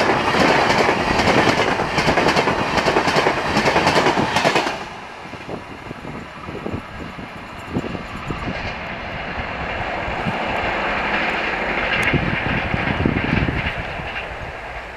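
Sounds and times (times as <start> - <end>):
train wheel clicks: 0.0 - 4.9, 9.6 - 14.9
train rushing roar: 0.0 - 14.9.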